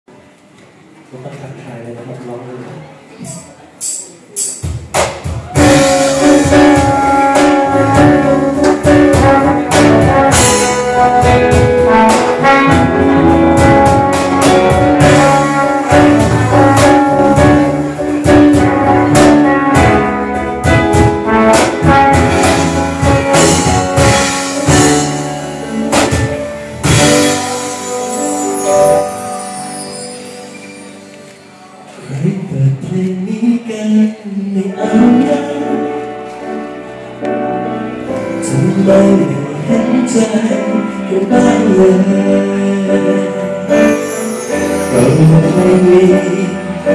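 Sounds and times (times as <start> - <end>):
live band playing: 3.2 - 46.9
drum hits: 4.4 - 28.0
trumpet melody: 5.5 - 31.9, 36.9 - 46.9.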